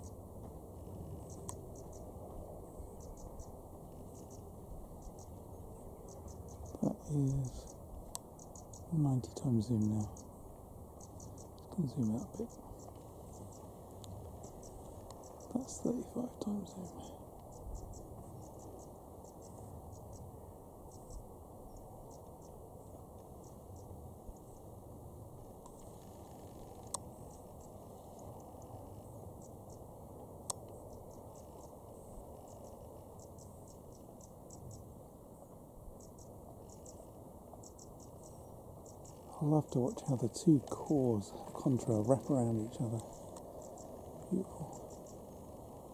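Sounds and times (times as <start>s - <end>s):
high-pitched cricket chirps: 0.8s - 24.8s, 25.6s - 45.9s.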